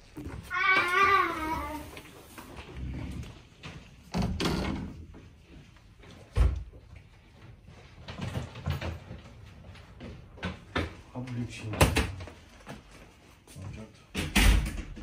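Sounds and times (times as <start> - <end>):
door shutting with a thud: 14.2 - 15.0.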